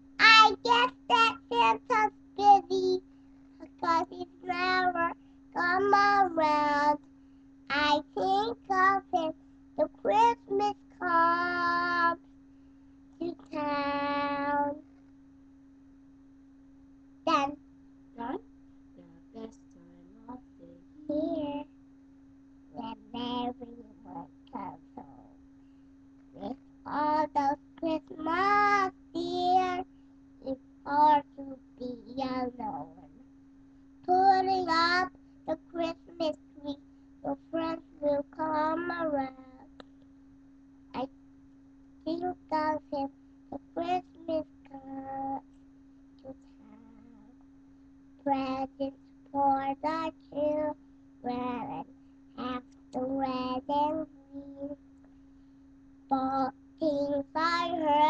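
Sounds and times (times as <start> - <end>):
faint steady hum: 0.0 - 58.0
boy singing: 0.2 - 3.0, 3.6 - 7.0, 7.7 - 12.2, 13.2 - 14.8, 20.2 - 21.6, 22.8 - 25.3, 26.4 - 29.8, 30.4 - 33.1, 34.1 - 39.6, 42.1 - 45.4, 48.3 - 51.8, 52.4 - 54.8, 56.1 - 58.0.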